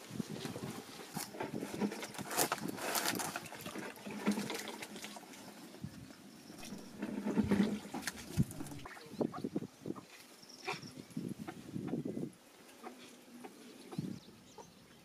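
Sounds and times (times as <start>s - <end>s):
water splashing and dripping: 6.6s - 9.1s.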